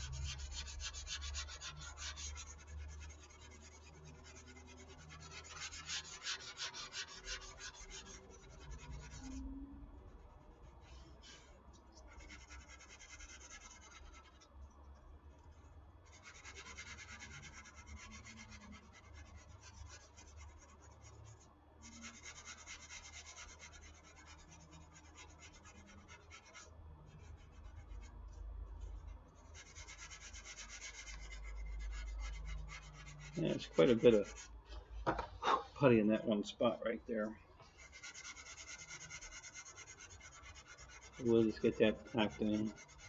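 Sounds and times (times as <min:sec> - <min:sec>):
sandpaper rubbing: 0:00.0 - 0:09.3, 0:29.5 - 0:34.5, 0:37.8 - 0:43.0.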